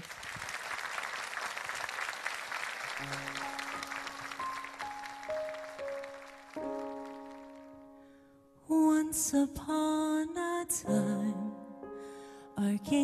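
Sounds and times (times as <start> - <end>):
audience applauding: 0.0 - 8.0
slow keyboard song: 3.0 - 13.0.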